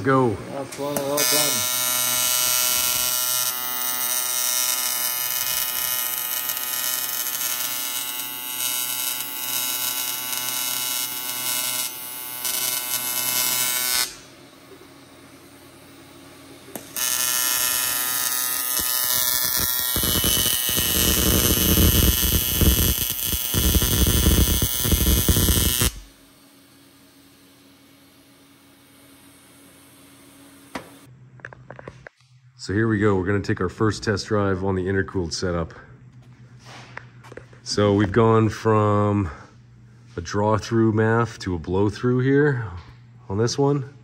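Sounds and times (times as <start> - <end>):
welding arc buzzing: 0.5 - 31.1.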